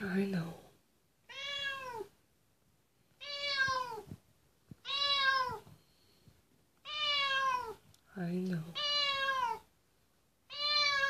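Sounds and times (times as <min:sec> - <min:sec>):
cat meowing: 0:01.2 - 0:02.1, 0:03.2 - 0:04.1, 0:04.8 - 0:05.7, 0:06.8 - 0:07.8, 0:08.8 - 0:09.7, 0:10.5 - 0:11.0.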